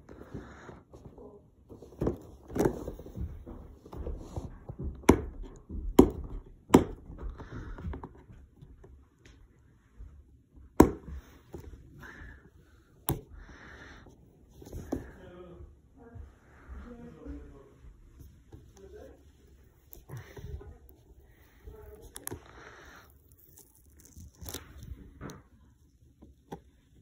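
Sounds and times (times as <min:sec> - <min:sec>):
packaging rustling and scraping: 0:19.5 - 0:25.7.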